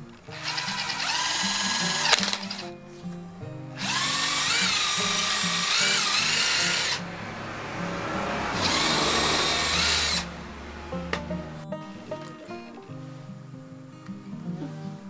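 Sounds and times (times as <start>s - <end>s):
impact driver motor whining: 0.0s - 2.7s, 3.8s - 7.0s, 8.6s - 10.3s.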